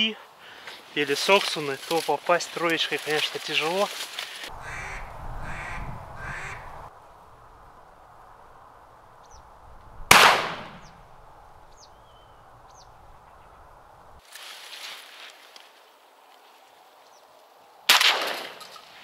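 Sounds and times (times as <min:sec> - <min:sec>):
short calls: 0:04.5 - 0:06.9
small birds chirping: 0:09.2 - 0:09.6, 0:10.8 - 0:13.8
shotgun shot with echo: 0:10.1 - 0:10.9, 0:17.9 - 0:18.6.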